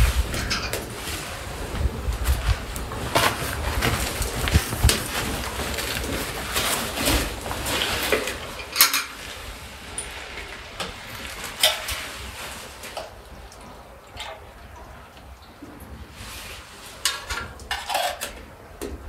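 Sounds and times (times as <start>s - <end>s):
scuffing on gravelly floor: 1.1s - 8.0s.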